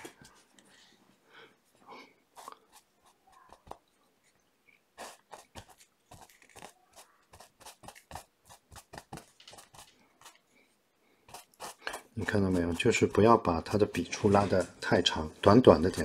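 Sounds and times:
paintbrush scratching on canvas: 0:02.3 - 0:03.9, 0:05.0 - 0:10.4, 0:11.2 - 0:14.8.

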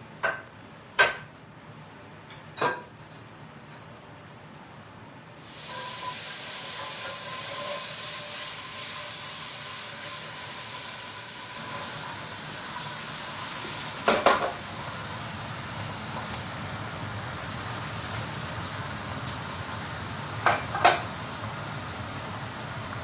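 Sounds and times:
chickpeas sizzling in oil: 0:05.4 - 0:23.0.

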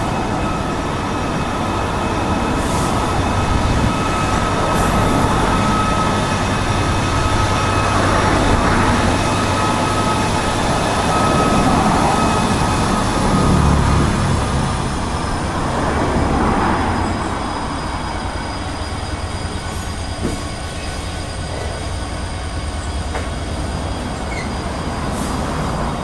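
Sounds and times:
diesel locomotive engine rumble: 0:00.0 - 0:26.0
freight wagons rolling on rails: 0:23.1 - 0:26.0.

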